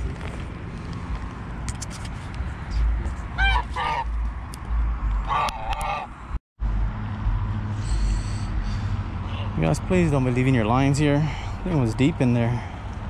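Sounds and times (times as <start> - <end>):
waterfowl honking: 3.4 - 4.1, 5.2 - 6.1.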